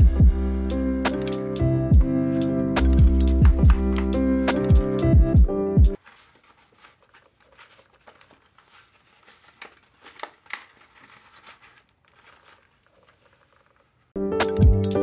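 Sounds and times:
packaging rustling and crinkling: 0:06.0 - 0:14.2.

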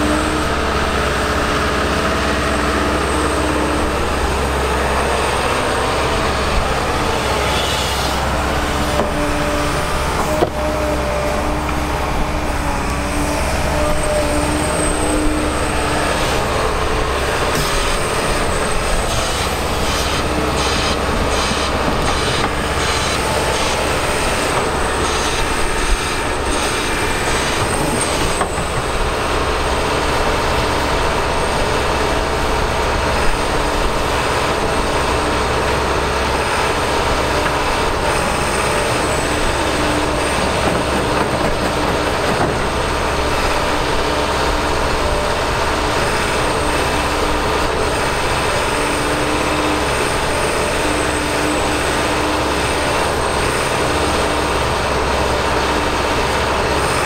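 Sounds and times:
excavator diesel engine: 0:00.0 - 0:57.0
hydraulic whine: 0:00.0 - 0:57.0.

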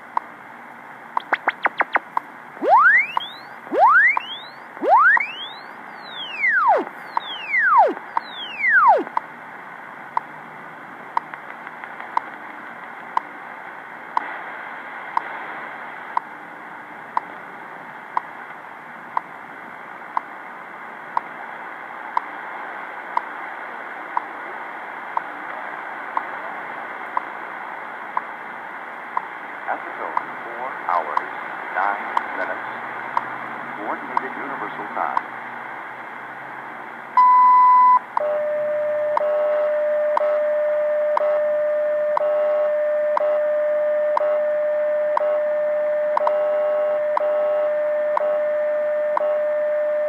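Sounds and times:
radio static hiss: 0:01.2 - 0:09.2, 0:21.4 - 0:37.0
swept radio tones: 0:01.2 - 0:09.2
time signal seconds tick: 0:02.6 - 0:09.2, 0:39.1 - 0:40.4, 0:41.1 - 0:41.5, 0:46.1 - 0:46.4, 0:48.1 - 0:48.4.

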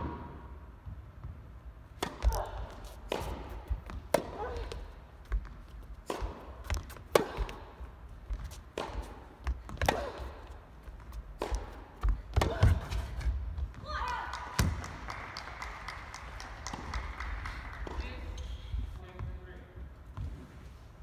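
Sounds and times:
tennis ball struck by rackets: 0:02.0 - 0:04.8, 0:06.0 - 0:07.7, 0:08.7 - 0:10.4, 0:11.3 - 0:13.0
tennis ball bouncing: 0:02.0 - 0:13.8, 0:14.6 - 0:15.5, 0:16.1 - 0:18.5.

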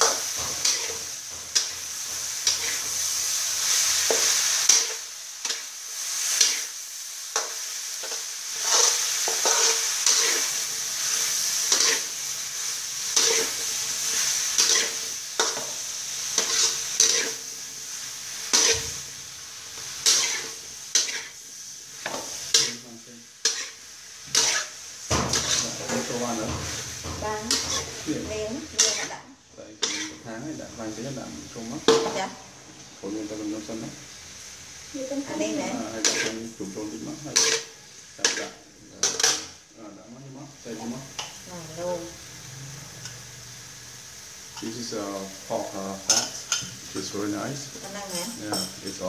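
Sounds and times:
metal spatula scraping pan: 0:00.0 - 0:05.6, 0:07.4 - 0:10.6, 0:11.6 - 0:12.1, 0:13.0 - 0:17.4, 0:18.4 - 0:19.0, 0:19.8 - 0:21.4, 0:22.0 - 0:22.8, 0:23.4 - 0:29.2, 0:29.8 - 0:30.2, 0:35.4 - 0:36.5, 0:37.3 - 0:39.6
food sizzling in a wok: 0:00.0 - 0:49.0.

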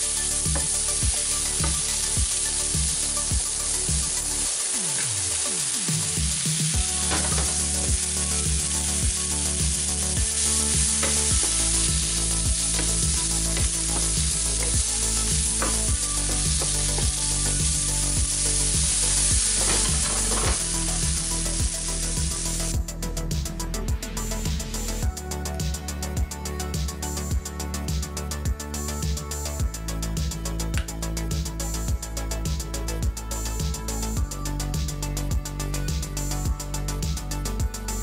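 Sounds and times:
apple slices sizzling in a pan: 0:00.0 - 0:22.8.

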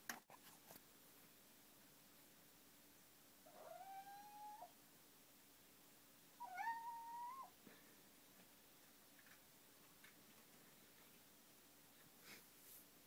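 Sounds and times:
kitten meowing: 0:03.5 - 0:04.7, 0:06.4 - 0:07.5.

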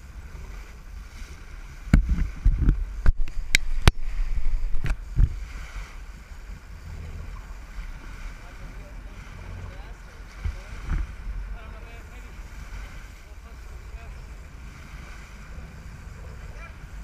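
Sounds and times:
boat engine rumble: 0:00.0 - 0:17.0
sharp knocks and thumps: 0:10.4 - 0:11.2.

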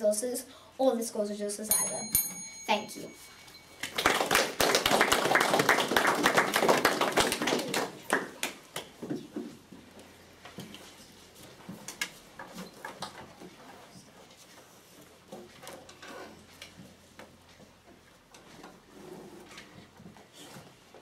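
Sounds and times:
audience clapping: 0:03.8 - 0:09.0.

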